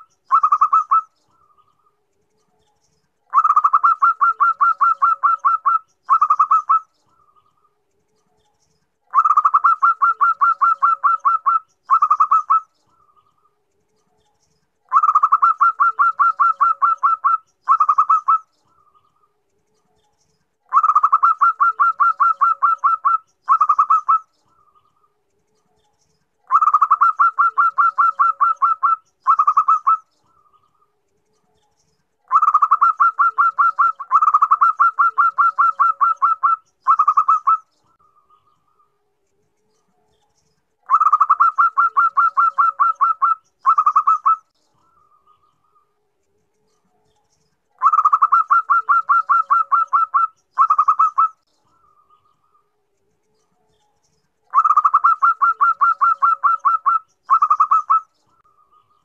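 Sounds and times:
dove cooing: 0.0s - 1.1s, 3.3s - 6.9s, 9.1s - 12.7s, 14.9s - 18.5s, 20.7s - 24.3s, 26.5s - 30.0s, 32.3s - 37.7s, 40.8s - 44.4s, 47.8s - 51.4s, 54.5s - 58.1s.

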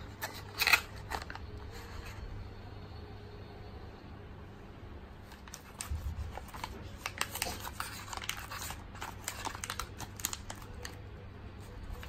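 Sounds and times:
paper wrapper tearing and crinkling: 0.0s - 1.4s, 5.3s - 11.0s.

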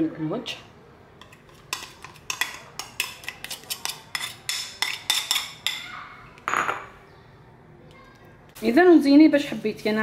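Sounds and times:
metal spoon clinking on metal tray: 1.2s - 5.9s.

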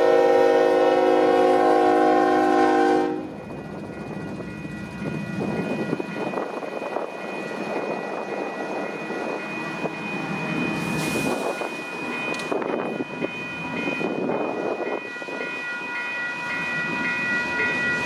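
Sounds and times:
locomotive air horn: 0.0s - 3.4s.

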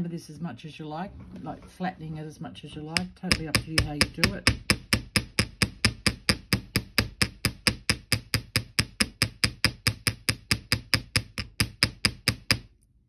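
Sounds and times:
hammer tapping wire on metal: 2.9s - 12.7s.

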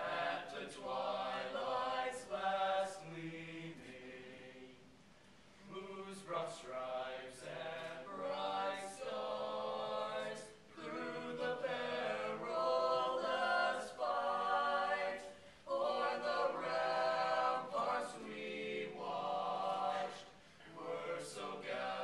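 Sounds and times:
men singing a capella: 5.6s - 22.0s.

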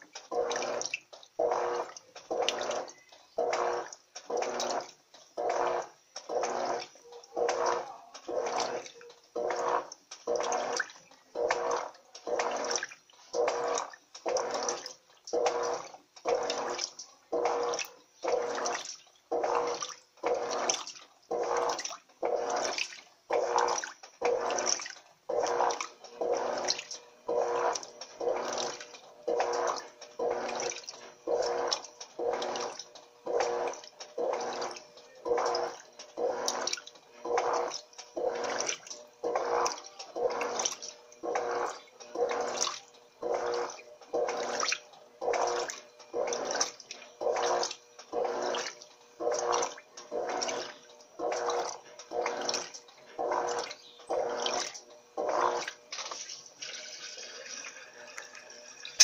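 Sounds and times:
washing machine hum: 0.0s - 59.0s
washing machine water swishing: 0.0s - 59.0s.

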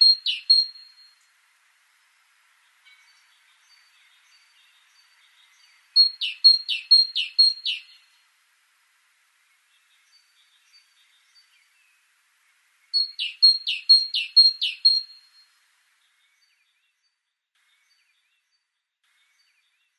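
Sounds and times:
great tit singing: 0.0s - 1.1s, 2.8s - 8.1s, 13.0s - 15.4s.

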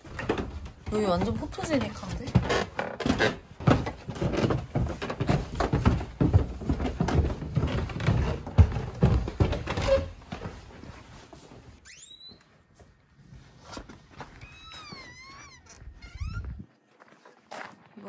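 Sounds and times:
footsteps on wooden floors: 0.0s - 11.8s.

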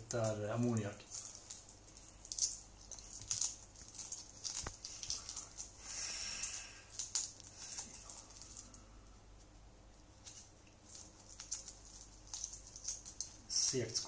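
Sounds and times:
small crackling clicks: 0.0s - 5.8s, 6.4s - 8.8s, 10.2s - 14.0s
eggshell being peeled by hand: 0.0s - 14.0s.

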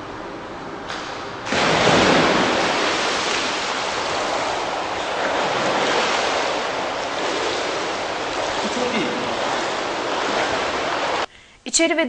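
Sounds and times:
person diving into pool splash: 1.5s - 11.3s
water splashing from swimming: 1.5s - 11.3s.

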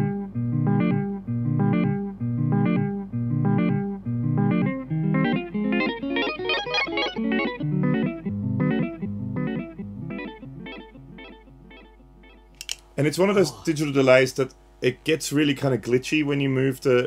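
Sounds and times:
electric guitar with echoing delay: 0.0s - 12.5s.

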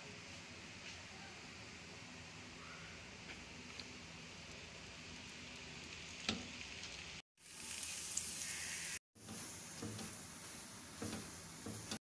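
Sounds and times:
flatbread sizzling in oil: 3.3s - 12.0s.

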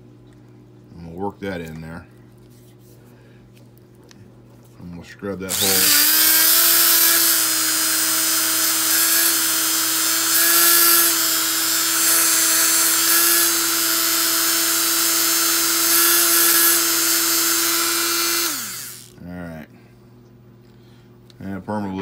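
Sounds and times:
rotary tool whining: 5.5s - 19.2s.

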